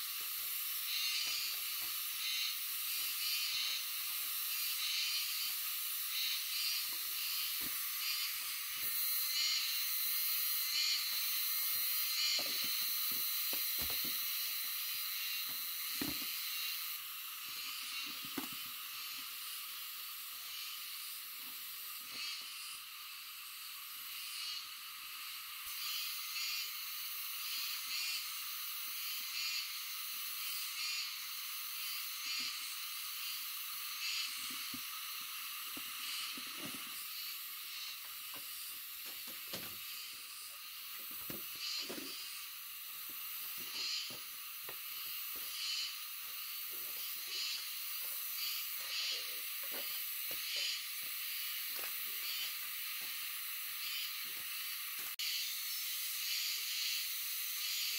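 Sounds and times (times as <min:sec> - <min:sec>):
steady high hiss: 0:00.0 - 0:57.9.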